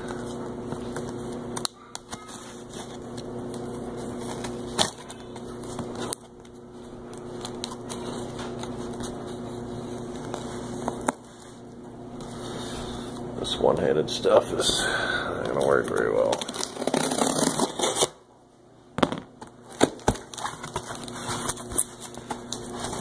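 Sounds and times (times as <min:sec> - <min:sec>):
electrical hum: 0:00.0 - 0:23.0
utility knife on packing tape: 0:16.5 - 0:18.2.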